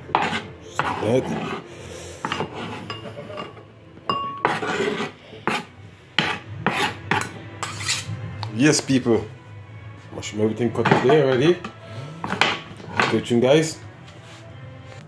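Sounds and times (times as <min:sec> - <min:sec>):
knife scraping cutting board: 0:00.0 - 0:03.6, 0:04.3 - 0:08.2, 0:10.8 - 0:13.3.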